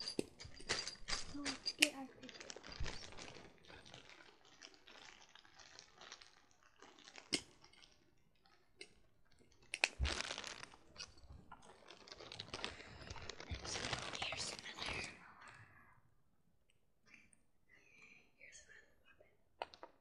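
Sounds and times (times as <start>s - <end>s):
plastic bag crinkling: 0.1s - 15.3s.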